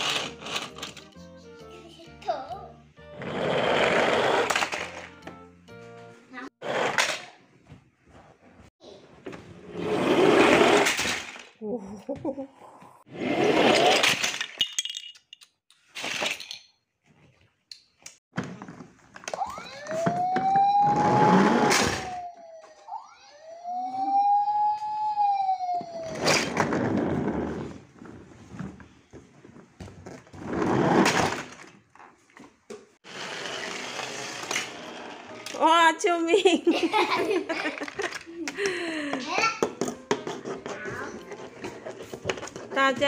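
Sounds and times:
toy fire truck siren wailing: 0:19.5 - 0:26.3.

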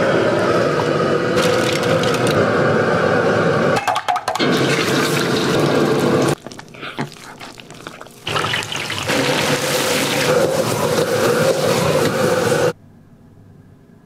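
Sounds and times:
deep-frying hiss and bubbling: 0:04.3 - 0:12.8.

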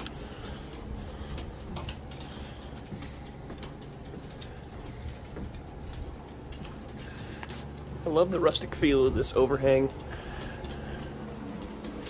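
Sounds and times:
footsteps on wooden boards: 0:00.0 - 0:08.1
steady low rumble: 0:00.0 - 0:12.0.

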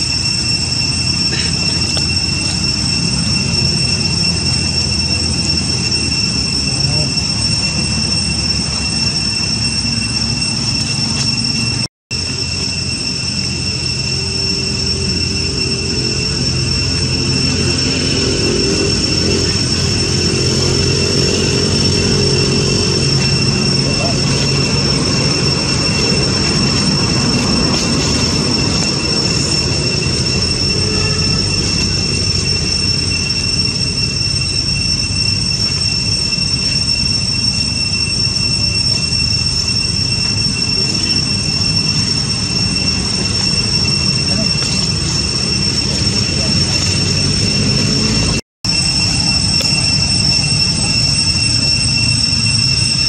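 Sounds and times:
low rumble: 0:00.0 - 0:37.5
steady high-pitched whine: 0:00.0 - 0:53.0.

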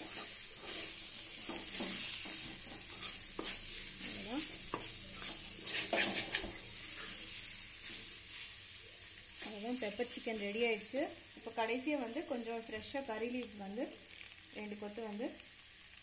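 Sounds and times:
metal spoon scraping pan: 0:00.0 - 0:08.5
chicken sizzling in oil: 0:00.0 - 0:16.0.

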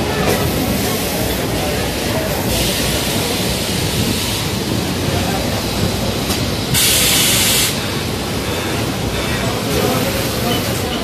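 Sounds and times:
press machine loud hiss: 0:06.7 - 0:07.8.

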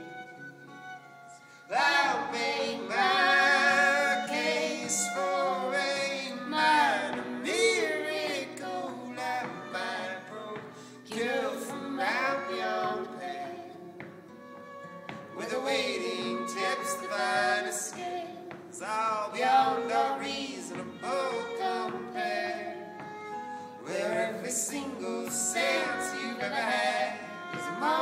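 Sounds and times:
acoustic guitar: 0:00.0 - 0:28.0
voices singing in harmony: 0:01.3 - 0:28.0.

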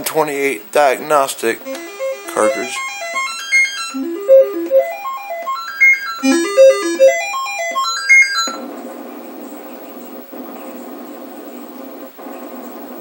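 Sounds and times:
stepped electronic beeping tones: 0:01.7 - 0:08.6.

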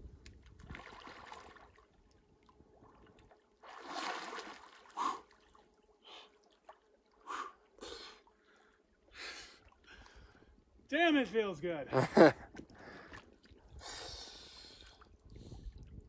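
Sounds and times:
water splashing: 0:00.3 - 0:08.8.

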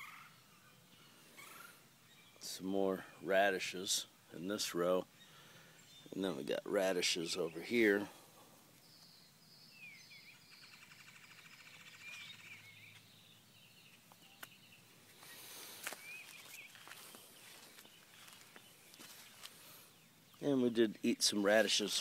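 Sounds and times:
bird chirps and trills: 0:08.8 - 0:21.0.

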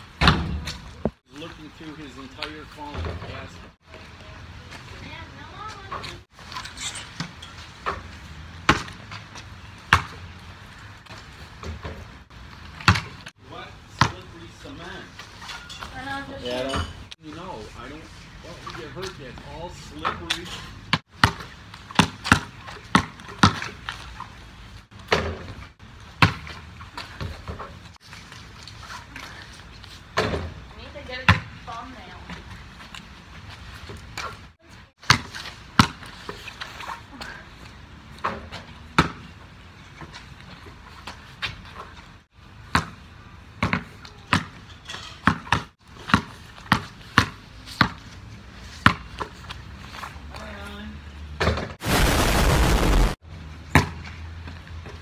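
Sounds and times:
basketball bouncing on wet concrete: 0:07.2 - 0:13.3, 0:13.9 - 0:14.4, 0:20.0 - 0:24.3, 0:24.9 - 0:27.7, 0:30.2 - 0:32.4, 0:35.0 - 0:36.6, 0:38.2 - 0:39.4, 0:42.6 - 0:44.6, 0:45.2 - 0:48.1, 0:48.7 - 0:49.4, 0:53.7 - 0:55.0.

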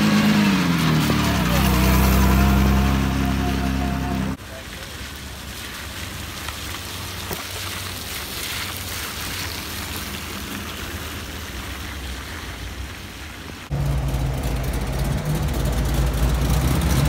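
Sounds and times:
car tyres on wet road: 0:00.0 - 0:17.0
rain hissing: 0:00.0 - 0:17.0
low engine hum: 0:09.4 - 0:17.0
classic car engine running: 0:13.7 - 0:17.0.

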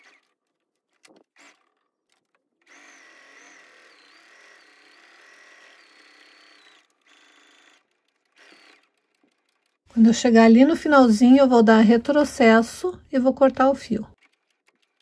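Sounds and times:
sewing machine running: 0:00.0 - 0:10.0, 0:14.2 - 0:15.0.

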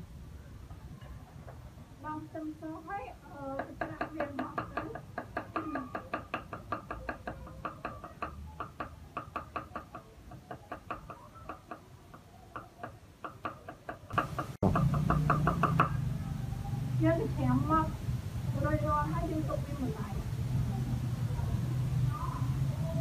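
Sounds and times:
cleaver chopping on wooden board: 0:12.6 - 0:16.0.

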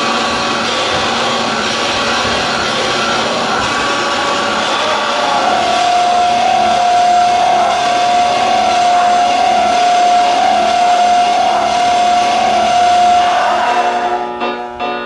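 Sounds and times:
harsh noise: 0:00.0 - 0:15.0
steady high tone: 0:00.0 - 0:15.0.

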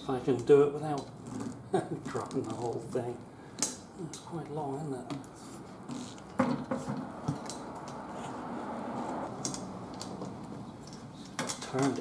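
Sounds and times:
sharp clicks and knocks: 0:06.1 - 0:08.0.

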